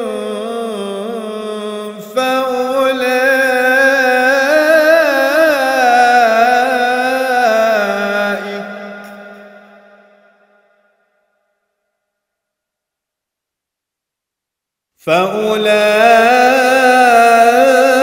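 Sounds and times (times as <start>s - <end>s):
man reciting melodically: 0.0s - 9.6s, 15.0s - 18.0s.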